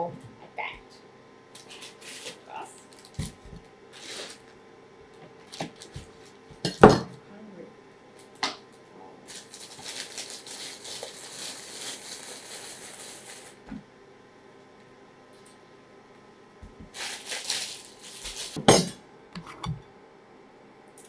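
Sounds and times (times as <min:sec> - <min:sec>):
plastic bag crinkling: 0:01.6 - 0:04.6, 0:05.4 - 0:06.4, 0:09.3 - 0:13.6, 0:16.9 - 0:18.6.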